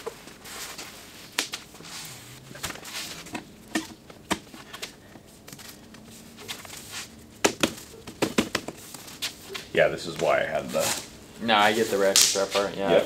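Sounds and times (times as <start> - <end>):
soft rustle: 0.0 - 3.3.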